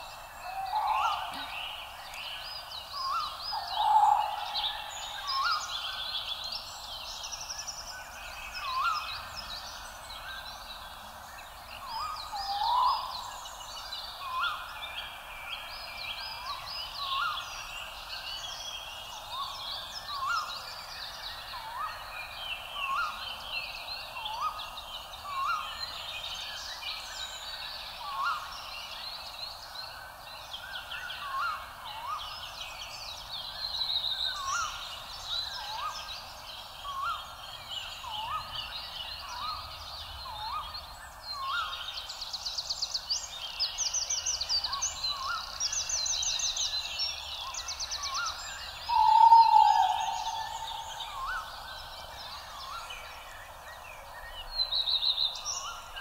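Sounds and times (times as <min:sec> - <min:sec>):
birds singing and calling: 0:00.0 - 0:56.0
short rising bird call: 0:48.8 - 0:51.7.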